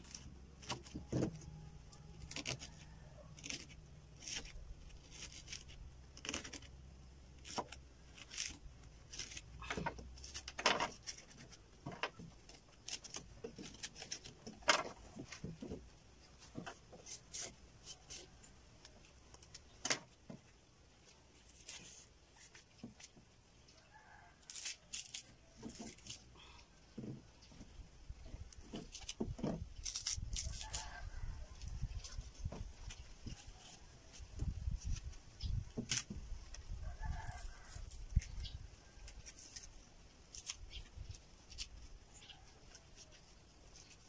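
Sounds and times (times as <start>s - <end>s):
knife cutting leaf stalk: 2.2s - 6.7s, 24.4s - 26.3s, 28.7s - 31.4s, 35.8s - 36.2s.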